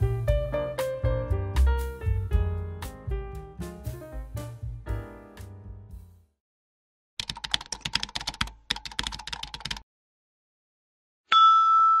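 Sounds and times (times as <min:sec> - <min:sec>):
keyboard typing: 0:07.2 - 0:09.8
bright ringing tone: 0:11.3 - 0:12.0.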